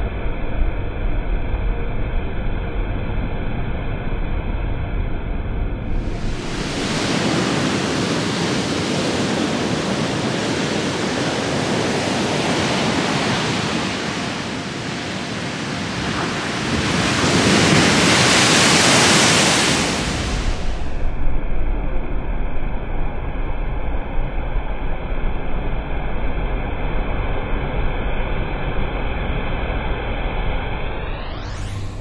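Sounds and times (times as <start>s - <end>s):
big wave crashing: 5.8s - 21.1s
surf breaking on beach: 5.9s - 21.1s.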